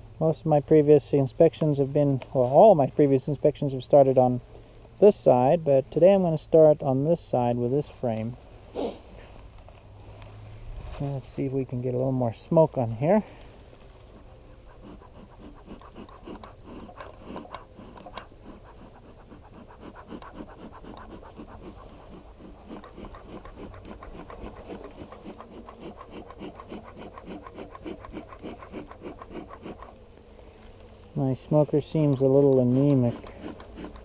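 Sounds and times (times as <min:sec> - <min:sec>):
bellows puffing air: 0:08.6 - 0:11.0, 0:13.1 - 0:30.6.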